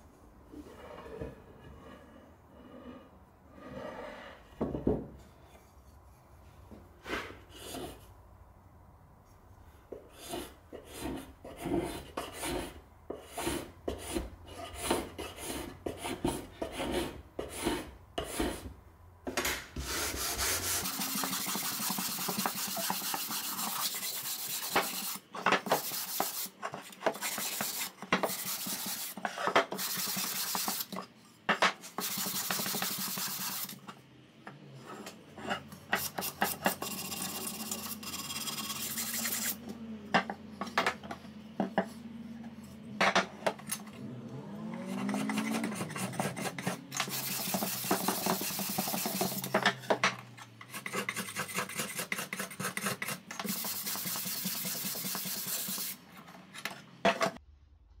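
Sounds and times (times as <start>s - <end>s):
sanding block scraping wood: 10.2s - 18.7s, 19.8s - 30.9s, 32.0s - 33.8s, 36.0s - 39.6s, 45.0s - 49.6s, 50.7s - 56.0s.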